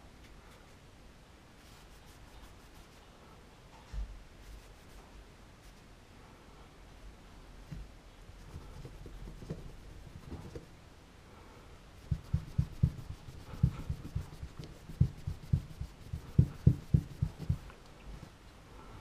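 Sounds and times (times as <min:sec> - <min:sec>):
rag rubbing on metal: 0:12.0 - 0:17.7.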